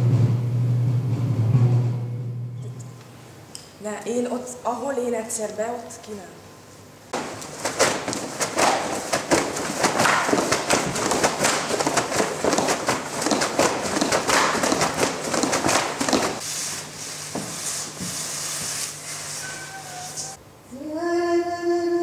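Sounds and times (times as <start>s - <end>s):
shoes stamping on hard floor: 7.2s - 16.4s.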